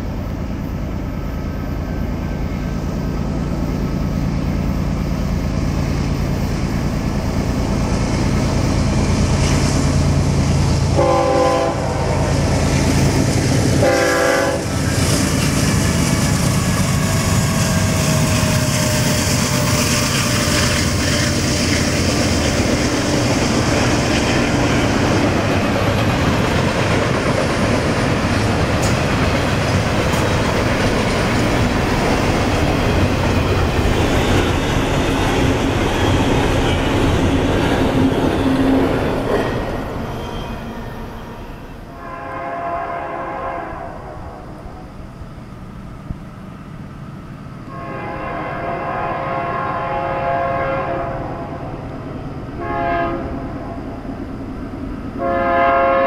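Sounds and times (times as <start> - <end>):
freight train wheels on rails: 0.0 - 56.0
train horn blasts: 10.9 - 12.4, 13.8 - 14.9, 41.0 - 44.8, 47.7 - 51.6, 52.6 - 53.7, 55.2 - 56.0.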